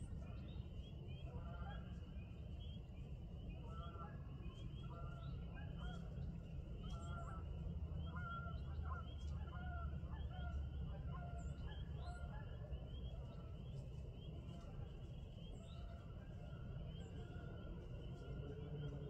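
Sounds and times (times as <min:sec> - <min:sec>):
low steady rumble: 0:00.0 - 0:19.0
distant birds honking: 0:08.0 - 0:12.6.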